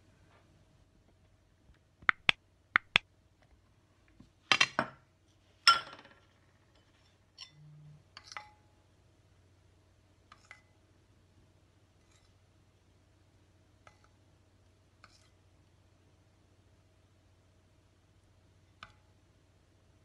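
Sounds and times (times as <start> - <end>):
dishes clinking: 5.7 - 6.2.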